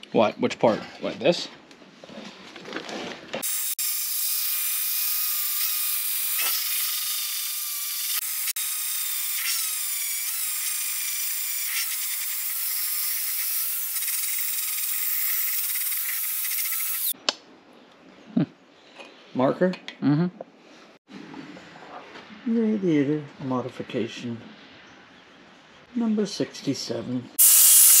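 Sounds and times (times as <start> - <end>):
angle grinder grinding metal: 3.4 - 17.1, 27.4 - 28.0.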